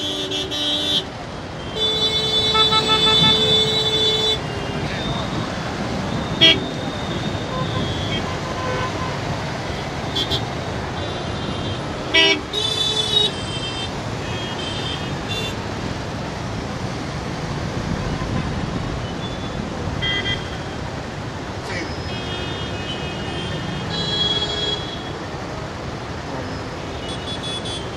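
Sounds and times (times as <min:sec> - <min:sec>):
vehicle horns honking: 0:00.0 - 0:05.4, 0:06.2 - 0:15.6, 0:21.9 - 0:25.2, 0:26.5 - 0:27.9
congested road traffic: 0:00.0 - 0:27.9.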